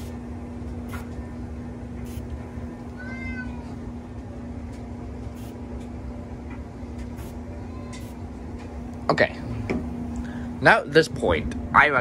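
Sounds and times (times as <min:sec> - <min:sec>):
steady low hum: 0:00.0 - 0:12.0
cat meowing: 0:02.9 - 0:03.8.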